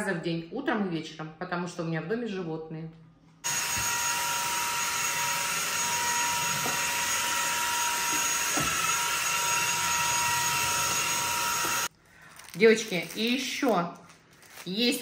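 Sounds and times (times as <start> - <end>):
stick vacuum running: 3.5 - 11.9.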